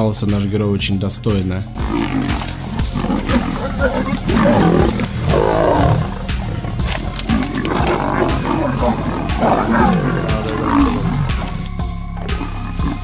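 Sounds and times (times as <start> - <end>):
background music: 0.0 - 13.0
leopard snarling: 1.8 - 13.0
lions growling: 1.8 - 13.0.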